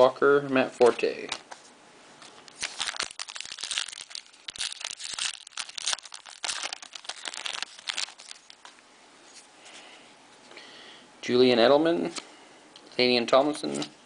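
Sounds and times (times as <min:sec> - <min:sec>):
foil wrapper crinkling: 0:02.5 - 0:08.7.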